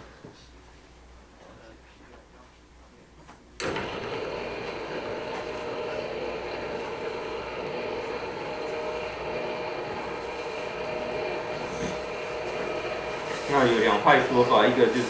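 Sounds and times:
projection screen motor humming: 3.6 - 15.0.

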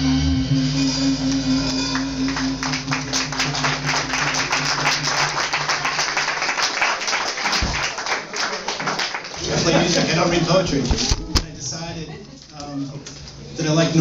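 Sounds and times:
audience clapping: 1.7 - 10.3.

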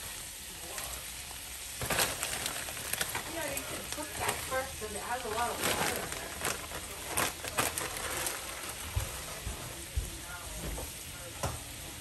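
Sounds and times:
food sizzling in a pan: 0.0 - 12.0
sharp crackles: 1.8 - 4.6.

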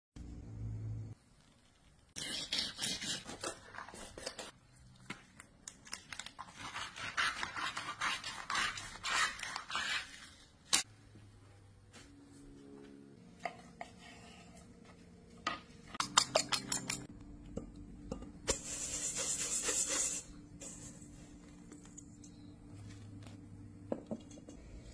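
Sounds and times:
knife scraping fish: 6.4 - 10.4.

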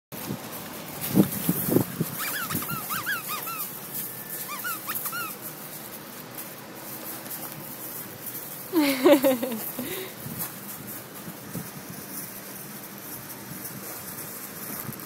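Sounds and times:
puppies whimpering and yipping: 2.0 - 5.5
puppy whines: 2.2 - 5.4.

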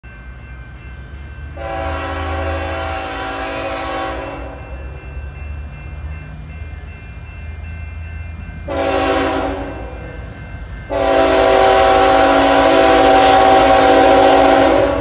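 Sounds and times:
locomotive air horn blast: 1.6 - 4.6, 8.7 - 10.0, 10.9 - 15.0.

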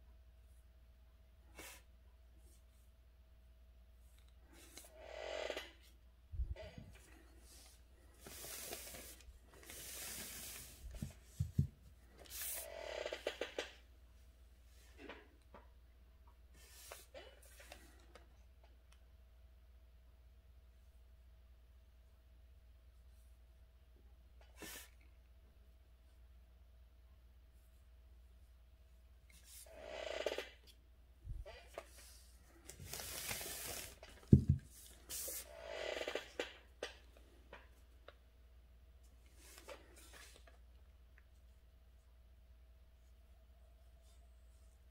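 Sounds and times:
brush swishing across paper: 7.4 - 11.6, 32.0 - 35.5.

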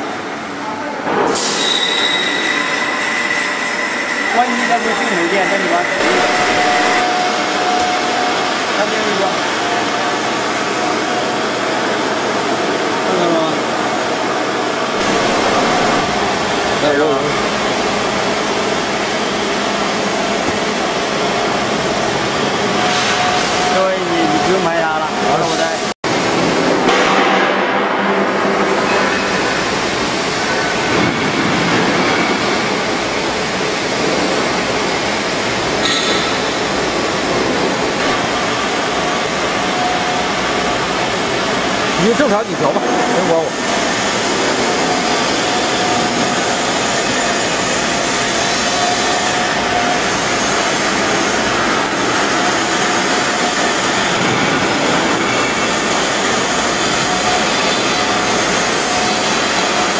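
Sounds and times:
steady mechanical rushing noise: 2.4 - 59.9
welding arc hissing: 6.0 - 7.6, 15.0 - 18.2.

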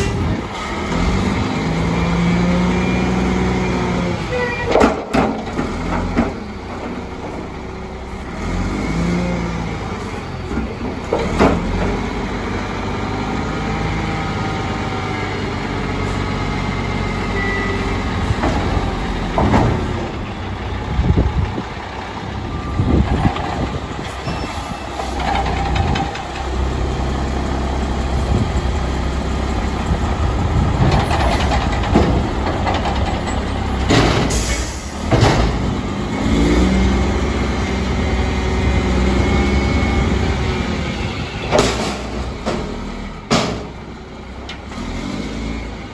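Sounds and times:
diesel truck engine revving: 0.0 - 4.3, 5.0 - 45.9
loud bangs and clanks: 18.3 - 20.3, 30.7 - 35.8, 41.4 - 44.0.

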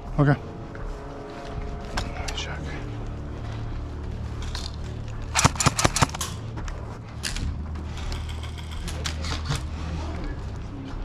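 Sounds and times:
airsoft rifle shots: 5.3 - 6.4.

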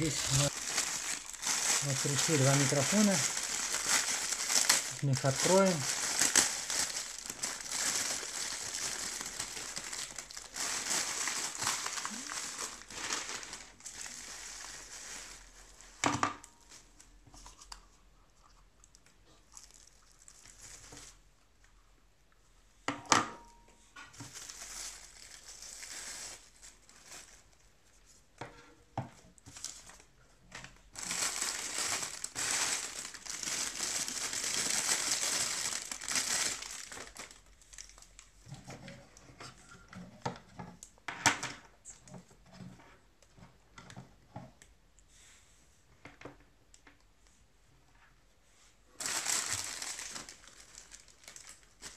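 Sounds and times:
plastic bags crinkling: 0.0 - 17.2, 19.5 - 21.2, 24.2 - 27.6, 30.9 - 38.6, 49.0 - 51.9.

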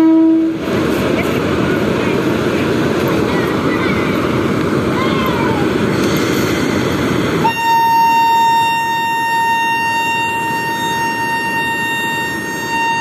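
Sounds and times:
train horn long blast: 0.0 - 0.6, 7.4 - 13.0.

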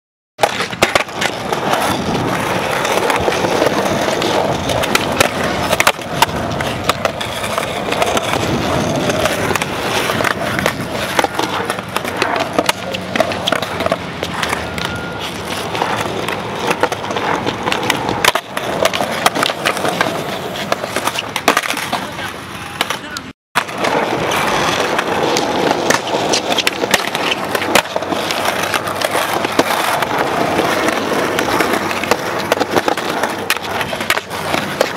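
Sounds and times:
skateboard clacks: 0.4 - 34.9
skateboard wheels rolling on concrete: 0.4 - 34.9.

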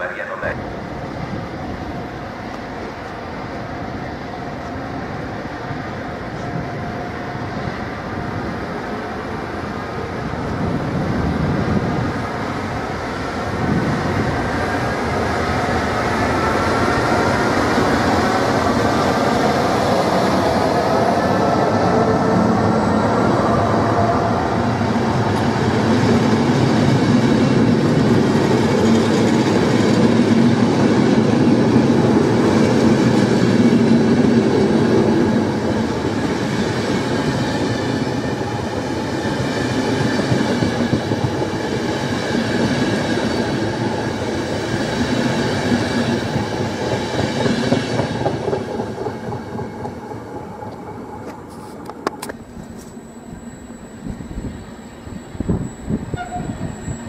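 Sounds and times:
train wheels rumbling on track: 0.0 - 57.0.

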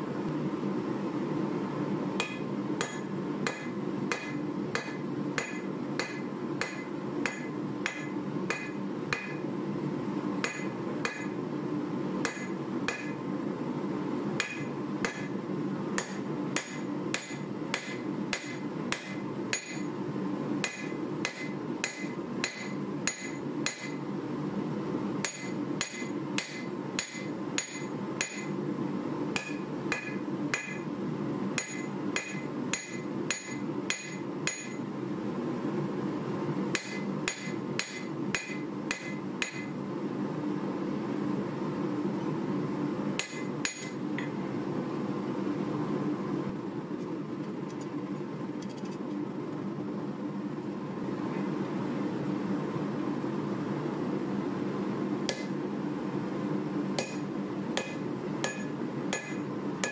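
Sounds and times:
hammer blows ringing on anvil: 2.2 - 9.4, 10.4 - 11.4, 12.2 - 13.2, 14.4 - 15.4, 16.0 - 19.9, 20.6 - 24.0, 25.2 - 28.6, 29.4 - 30.9, 31.6 - 34.8, 36.8 - 39.7, 43.2 - 44.0, 55.3 - 55.5, 57.0 - 57.2, 57.8 - 59.9.

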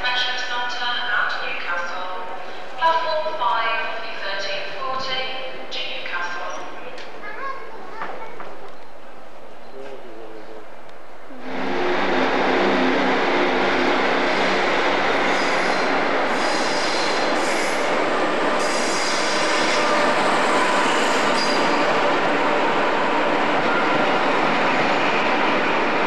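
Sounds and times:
train rolling roar: 8.4 - 26.0.

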